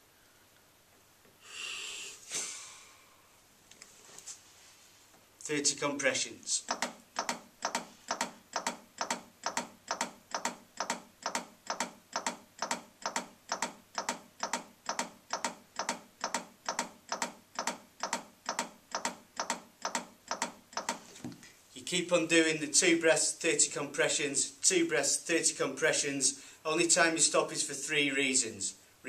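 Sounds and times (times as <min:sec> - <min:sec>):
training manikin chest clicking: 0:06.6 - 0:21.4.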